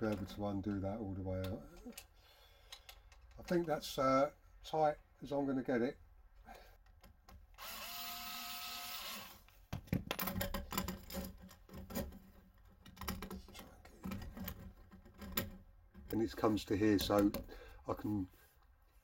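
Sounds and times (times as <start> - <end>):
clicks and knocks of handled parts: 0.0 - 3.9, 6.8 - 7.6, 9.4 - 17.6
power tool motor running: 7.6 - 9.4.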